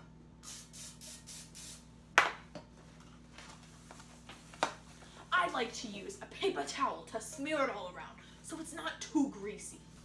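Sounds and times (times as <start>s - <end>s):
aerosol spray hissing: 0.4s - 1.8s.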